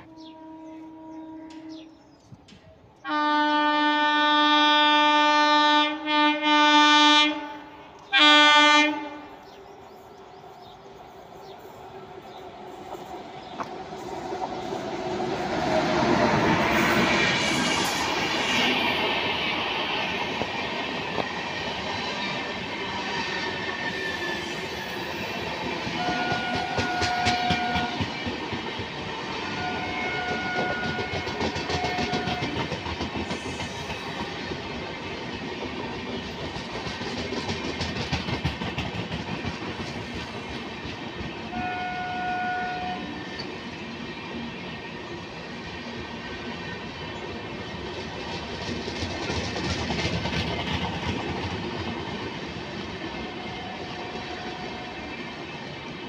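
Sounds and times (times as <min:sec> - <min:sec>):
train horn: 0:00.0 - 0:02.0, 0:03.0 - 0:09.5, 0:25.9 - 0:28.2, 0:29.3 - 0:32.8, 0:41.4 - 0:43.2, 0:53.1 - 0:55.2
train wheels rumbling on rails: 0:08.0 - 0:56.0
clatter over rail joints: 0:48.3 - 0:51.8.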